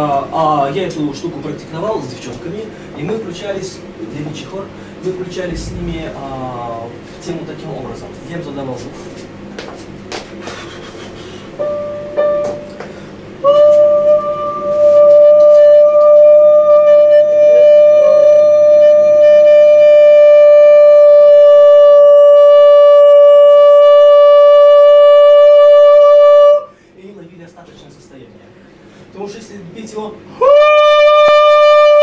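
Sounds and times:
person singing a sustained note: 5.5 - 6.9.

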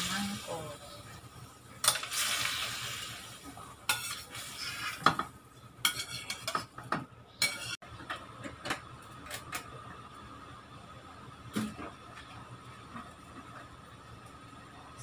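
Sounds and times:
hot wok hissing: 0.0 - 5.2.

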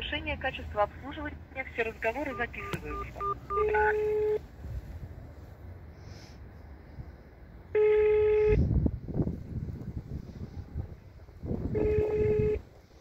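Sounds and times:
telephone ringback beep: 2.3 - 4.4.

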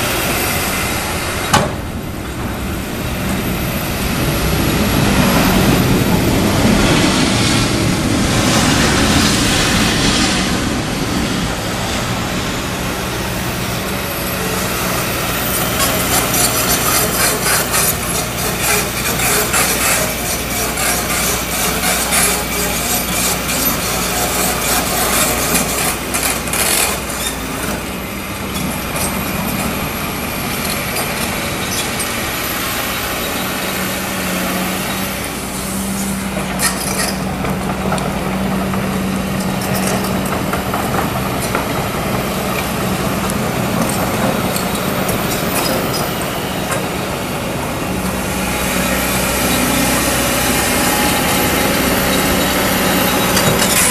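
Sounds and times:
excavator diesel engine running: 0.0 - 53.9
steel bucket scraping and clattering: 15.4 - 27.9, 52.0 - 53.9.

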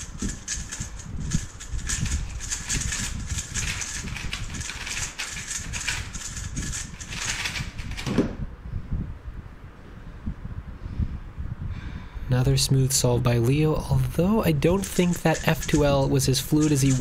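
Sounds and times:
puzzle cube plastic clicks: 0.0 - 8.2, 14.8 - 17.0.

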